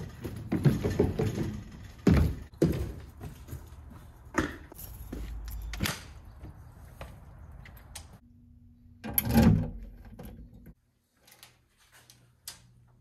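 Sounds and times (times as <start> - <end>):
footsteps on wooden stairs: 0.0 - 7.8.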